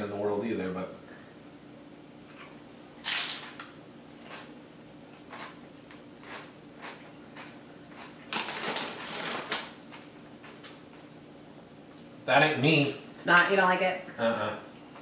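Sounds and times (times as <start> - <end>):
chip crunching while chewed: 5.2 - 9.5.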